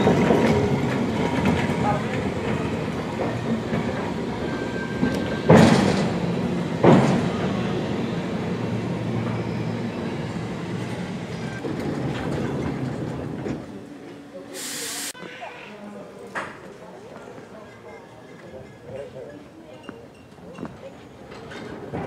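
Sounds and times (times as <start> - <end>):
wheels clanking on track: 0.0 - 13.8
tram rumbling on rails: 0.0 - 14.4, 20.2 - 22.0.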